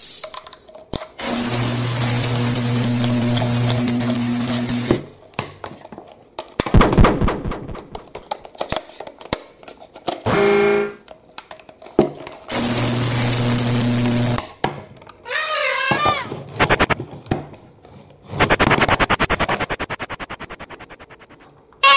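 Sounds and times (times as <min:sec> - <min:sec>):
plastic toy parts clattering: 0:07.7 - 0:10.2
toy screwdriver whirring: 0:16.6 - 0:17.0, 0:18.4 - 0:21.9.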